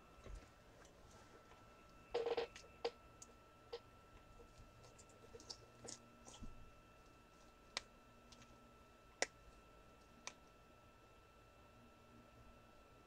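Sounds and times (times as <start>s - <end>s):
faint high whine: 0.0s - 13.0s.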